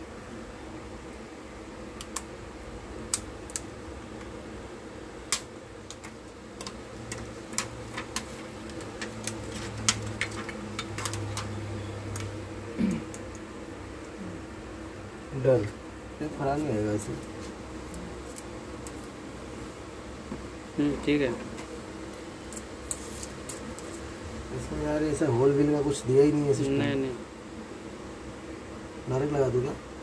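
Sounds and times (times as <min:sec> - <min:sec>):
steady background hum: 0:00.0 - 0:30.0
sharp clicks and taps of metal parts: 0:05.3 - 0:11.5.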